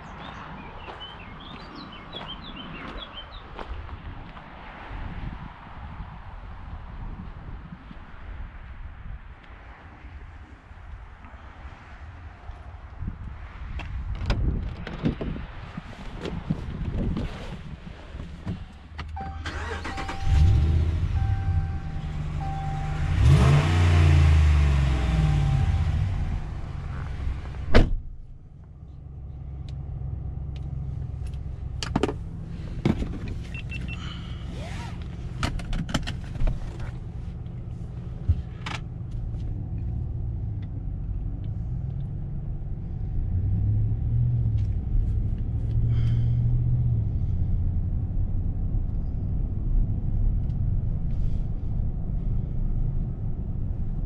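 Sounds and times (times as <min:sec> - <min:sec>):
door slamming shut: 0:27.6 - 0:28.1.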